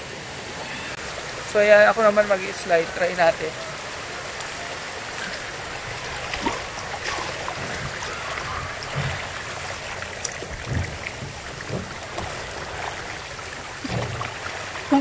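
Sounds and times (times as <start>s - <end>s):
water rushing down a slide: 1.8s - 15.0s
soft low thumps: 7.4s - 14.5s.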